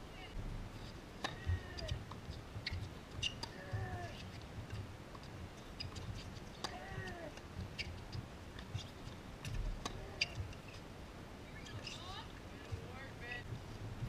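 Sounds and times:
shoe squeaks on court: 2.6s - 3.6s.

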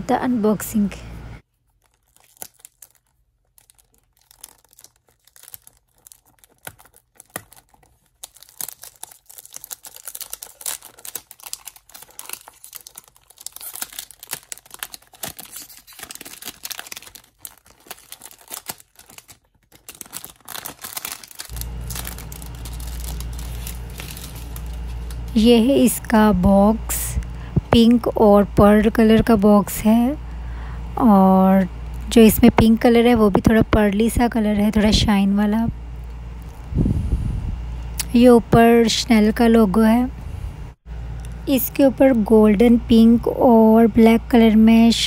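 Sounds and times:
cellophane wrap crinkling: 1.4s - 26.1s.

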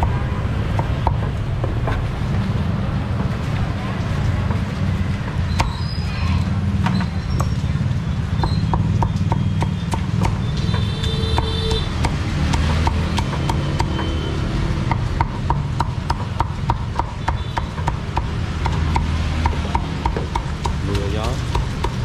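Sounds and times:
cleaver chopping on wooden block: 8.4s - 14.0s, 14.8s - 22.0s.

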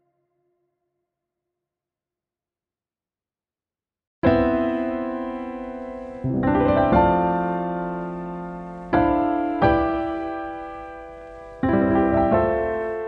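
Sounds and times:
slow soft piano chords: 4.2s - 13.0s.

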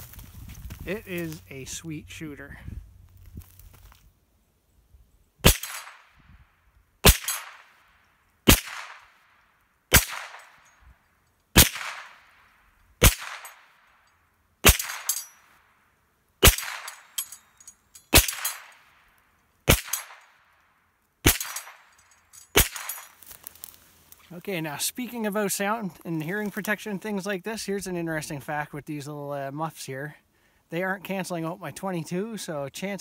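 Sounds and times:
rifle shots: 5.4s - 6.2s, 7.0s - 7.8s, 8.5s - 9.2s, 9.9s - 10.6s, 11.6s - 12.2s, 13.0s - 13.7s, 14.6s - 15.2s, 16.4s - 17.0s, 18.1s - 18.8s, 19.7s - 20.3s, 21.2s - 21.8s, 22.6s - 23.1s.

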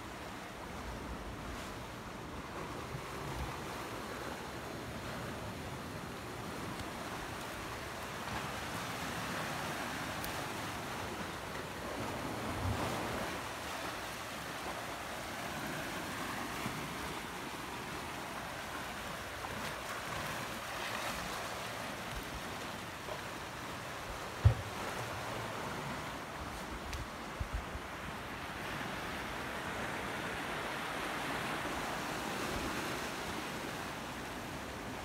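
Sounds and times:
waves washing against rocks: 2.2s - 26.8s.

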